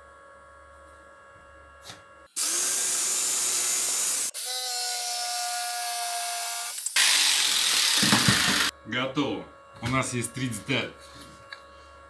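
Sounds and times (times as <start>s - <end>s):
jigsaw cutting wood: 2.4s - 8.7s
motor whine: 6.6s - 8.8s.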